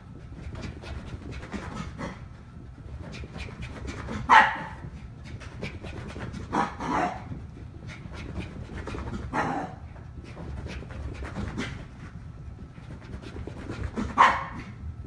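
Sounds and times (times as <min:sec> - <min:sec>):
dog panting: 0:00.0 - 0:14.2
paws scampering: 0:00.0 - 0:14.9
small dog barking: 0:04.1 - 0:04.9, 0:06.5 - 0:07.3, 0:09.3 - 0:09.8, 0:14.0 - 0:14.8.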